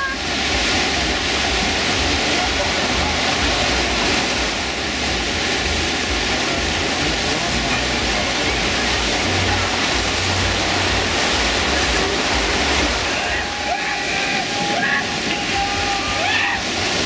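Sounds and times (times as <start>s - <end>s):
whitewater rushing: 0.0s - 17.0s.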